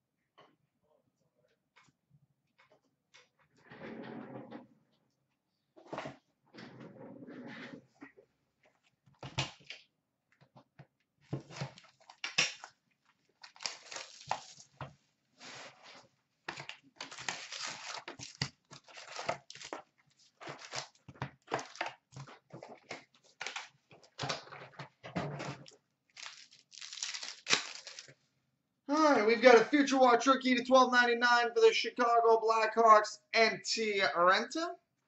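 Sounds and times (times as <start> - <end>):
plastic wrap crinkling and tearing: 11.6 - 14.8, 16.5 - 24.4, 25.6 - 28.2
cardboard packaging rustling: 13.2 - 14.8, 15.4 - 24.6, 25.5 - 28.2.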